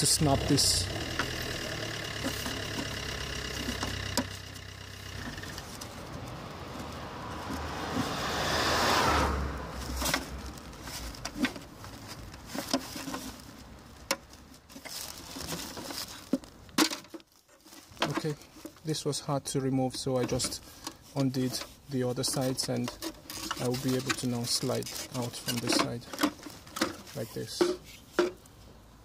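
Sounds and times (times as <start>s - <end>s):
road vehicle passing: 0.0s - 16.2s.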